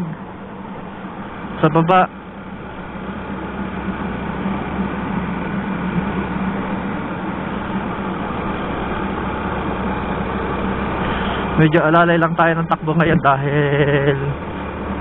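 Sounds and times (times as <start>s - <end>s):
motorcycle engine running: 0.0s - 15.0s
steady low hum: 0.0s - 15.0s
wind and road noise: 0.0s - 15.0s.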